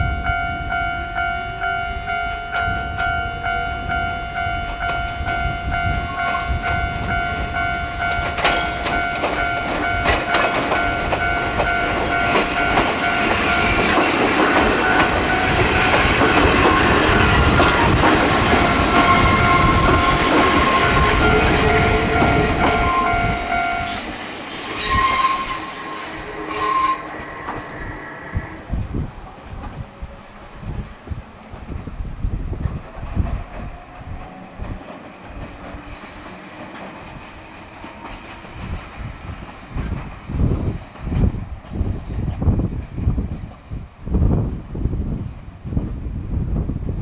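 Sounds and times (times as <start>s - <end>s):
level-crossing alarm ringing: 0.0s - 24.1s
train wheels clattering over joints: 8.0s - 25.3s, 32.5s - 43.7s.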